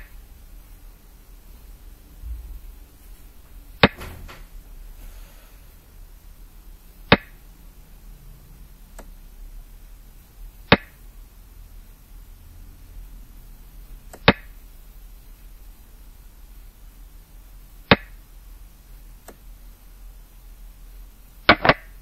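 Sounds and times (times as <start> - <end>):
game piece clacking on a board: 21.5 - 21.9.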